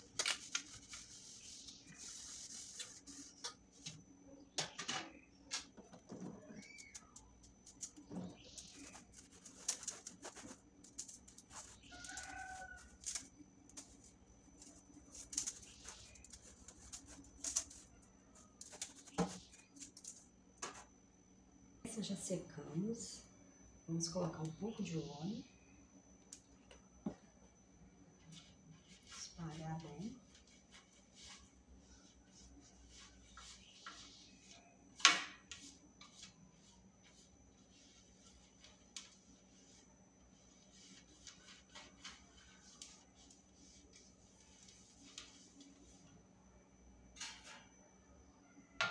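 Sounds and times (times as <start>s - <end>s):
brush scraping over tray: 35.5s - 46.0s.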